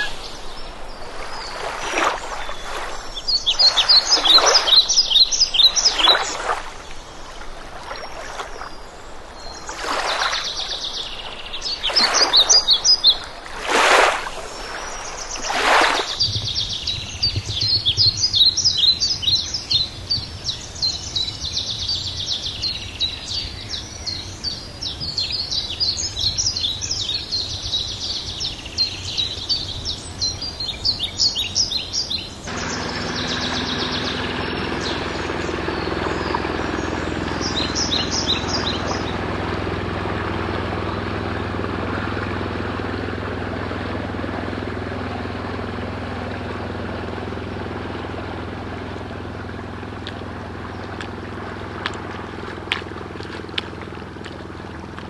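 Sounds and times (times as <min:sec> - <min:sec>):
paddle strokes swishing through water: 0:00.0 - 0:18.3, 0:32.5 - 0:55.0
birds singing: 0:00.0 - 0:55.0
low steady hum: 0:00.0 - 0:55.0.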